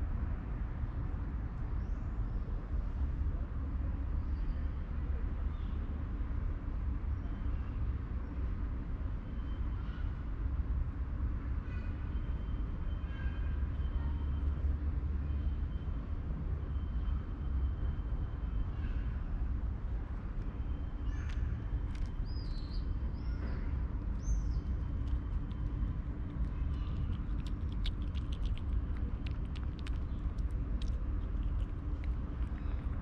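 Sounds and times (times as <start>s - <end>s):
distant city traffic: 8.4s - 33.0s
bird chirps: 20.7s - 25.6s.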